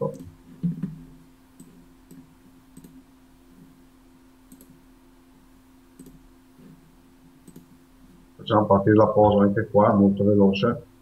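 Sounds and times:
low electrical hum: 0.0 - 11.0
computer mouse clicks: 0.1 - 1.0, 1.6 - 3.0, 4.5 - 4.8, 6.0 - 6.8, 7.4 - 7.8.

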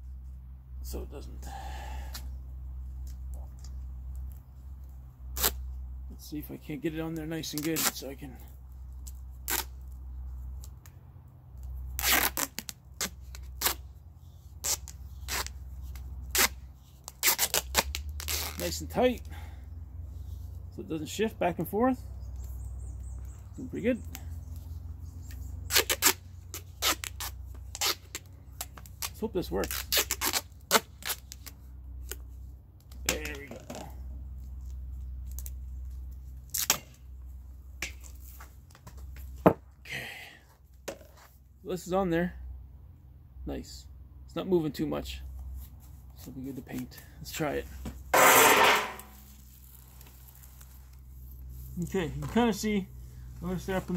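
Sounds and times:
duct tape ripping off roll: 5.4 - 5.6, 7.4 - 8.0, 9.0 - 9.9, 11.9 - 13.9, 14.6 - 18.9, 25.6 - 32.2, 36.4 - 37.1, 48.2 - 51.0
low steady rumble: 47.5 - 53.9.

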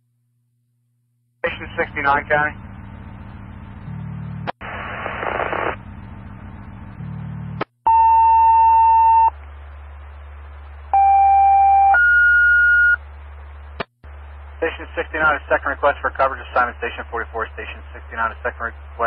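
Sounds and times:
radio carrier hum: 1.4 - 2.6, 4.4 - 5.9, 13.1 - 19.0
burst of static: 4.4 - 5.8.

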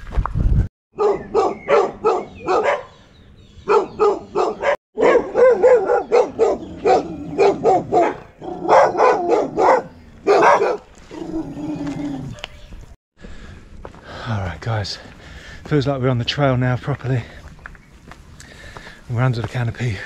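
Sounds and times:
dog barking: 1.0 - 3.0, 3.6 - 10.9.

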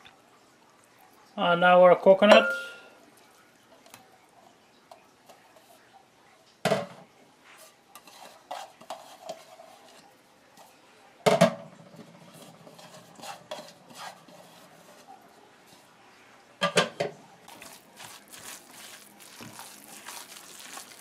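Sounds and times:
utensil scraping in glass bowl: 7.5 - 10.0, 12.3 - 15.1, 17.5 - 21.0.

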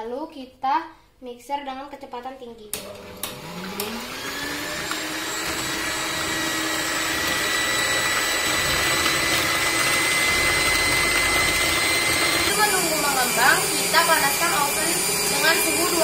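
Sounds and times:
mixer switch click: 2.7 - 4.0
electric mixer motor whine: 2.8 - 16.0.

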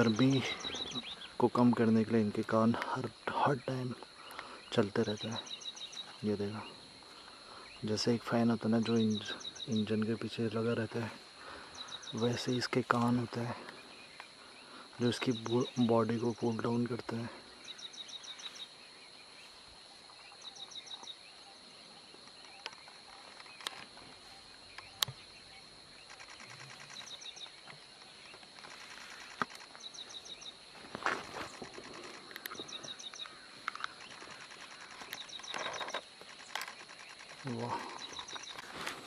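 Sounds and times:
high insect drone: 0.0 - 39.0
rapid high chirping: 26.1 - 27.6
sharp clicks: 26.1 - 30.2, 31.2 - 38.7.

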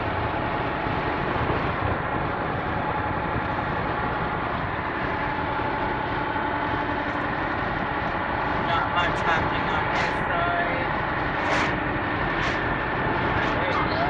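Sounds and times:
van engine and tyre drone: 0.0 - 14.0.

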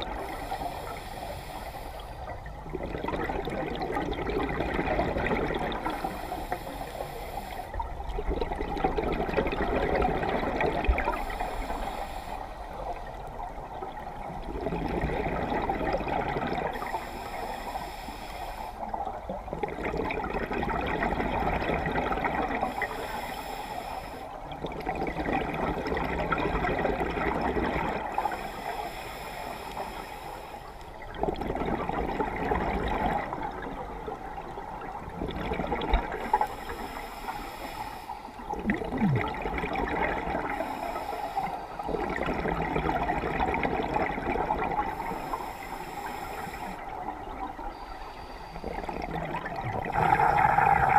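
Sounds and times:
regulator hissing inhale: 0.1 - 2.4, 5.8 - 7.9, 11.1 - 13.3, 16.7 - 19.0, 22.6 - 24.4, 28.1 - 31.0, 36.2 - 38.5, 40.5 - 42.0, 44.8 - 47.0, 47.6 - 49.1, 49.9 - 50.9
exhaled bubbles rushing: 2.6 - 6.0, 8.2 - 11.2, 13.9 - 16.7, 24.6 - 28.1, 31.1 - 36.3, 38.5 - 40.6, 41.9 - 44.9, 48.6 - 50.9.

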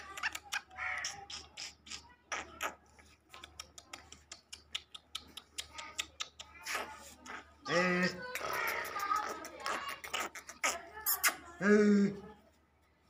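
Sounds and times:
bird clicks and ticks: 0.0 - 7.4.

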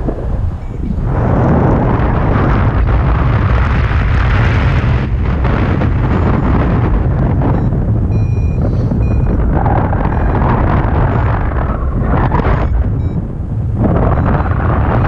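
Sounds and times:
wind buffeting microphone: 0.0 - 15.0.

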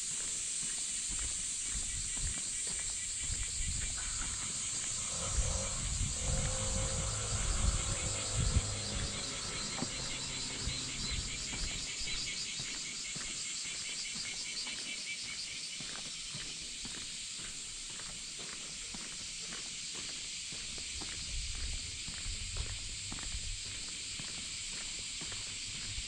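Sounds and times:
pulsing insect chorus: 0.0 - 26.0
low rumble: 3.0 - 12.4.

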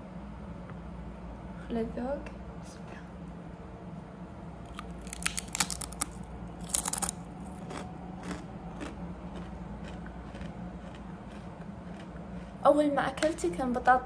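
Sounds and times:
crunching potato chips: 4.7 - 12.1.

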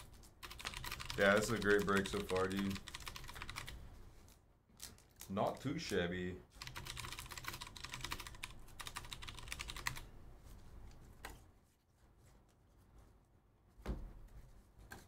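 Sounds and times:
keyboard typing: 0.0 - 3.8, 6.6 - 10.1.

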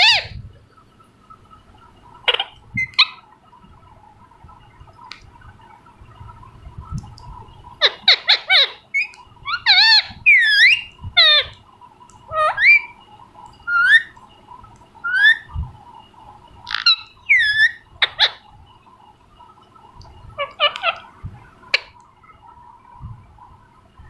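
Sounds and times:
parakeet squawks and chirps: 0.0 - 0.5, 1.8 - 3.5, 7.0 - 18.7, 19.4 - 22.7.

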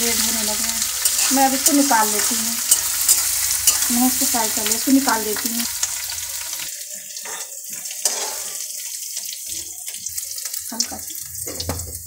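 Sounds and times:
hot oil sizzling: 0.0 - 12.0
metal spatula clinking on pan: 1.0 - 4.0, 7.2 - 8.6.

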